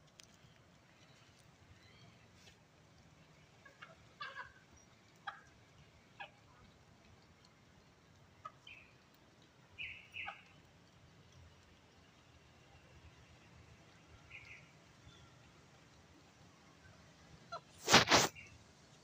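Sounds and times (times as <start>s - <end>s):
chickens clucking: 5.2s - 5.6s.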